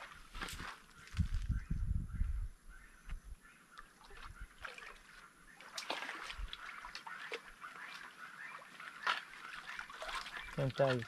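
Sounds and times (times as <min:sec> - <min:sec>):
shallow water splashing: 0:03.8 - 0:11.0.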